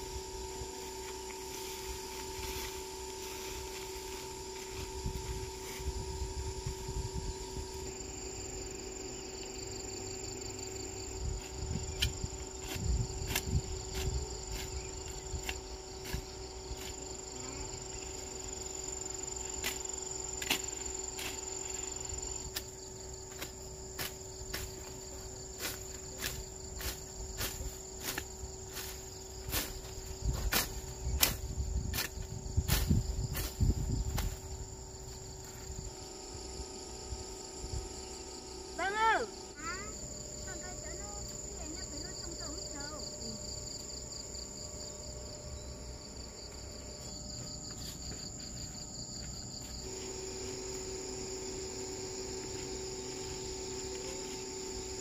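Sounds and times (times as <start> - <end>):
grass rustling as weeds are pulled: 0.0 - 6.7, 11.2 - 36.0
insects chirping: 0.0 - 55.0.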